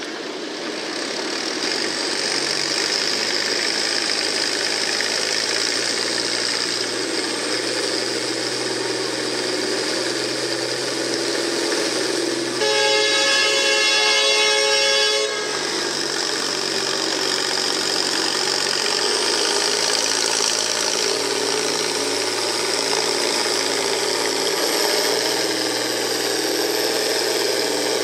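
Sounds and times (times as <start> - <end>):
tractor diesel engine under load: 0.0 - 28.0
horn blaring: 10.6 - 18.0.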